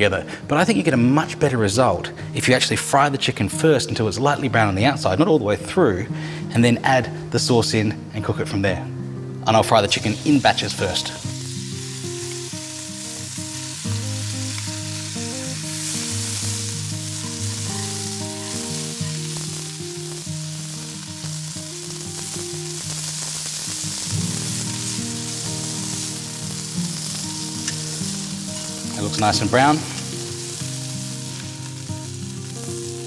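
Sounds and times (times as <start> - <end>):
chicken sizzling in hot oil: 9.9 - 33.0.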